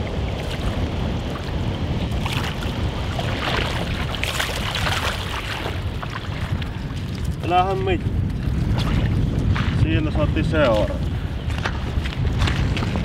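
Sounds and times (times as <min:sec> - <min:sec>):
fish splashing in shallow water: 0:00.0 - 0:07.5
wind buffeting microphone: 0:00.0 - 0:13.0.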